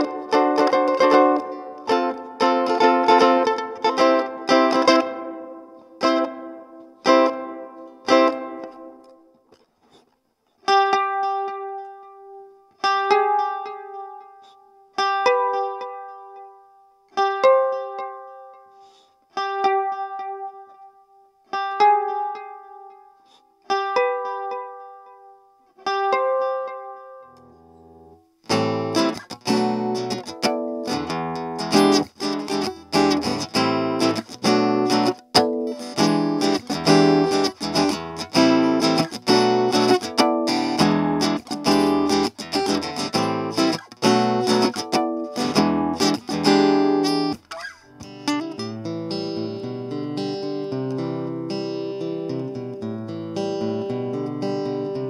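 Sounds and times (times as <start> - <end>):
electric guitar strumming chords: 0.0 - 9.2, 23.7 - 55.0
acoustic guitar picked notes: 0.0 - 9.6, 10.6 - 55.0.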